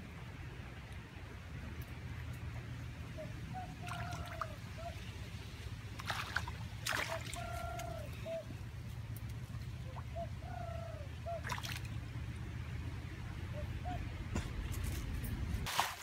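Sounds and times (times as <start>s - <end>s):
bird calling: 3.0s - 5.4s, 6.0s - 12.3s, 13.0s - 14.9s
muddy water splashing: 3.4s - 12.7s, 15.5s - 16.0s.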